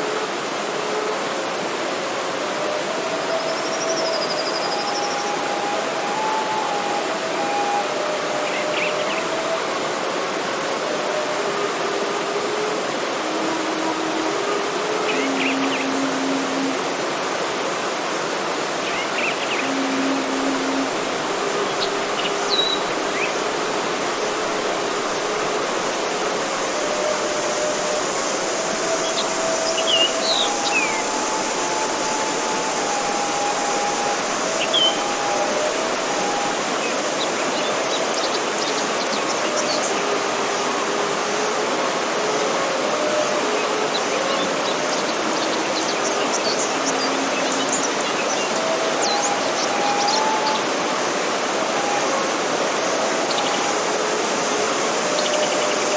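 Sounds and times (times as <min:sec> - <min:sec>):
bamboo flute melody: 0:00.0 - 0:55.9
stream rushing over rocks: 0:00.0 - 0:55.9
bird chirps: 0:21.7 - 0:23.3.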